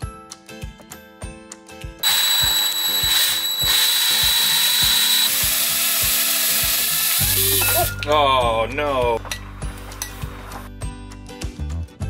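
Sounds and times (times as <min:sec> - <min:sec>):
high motor whine: 0:02.0 - 0:07.8
cordless drill whisking batter: 0:02.0 - 0:07.9.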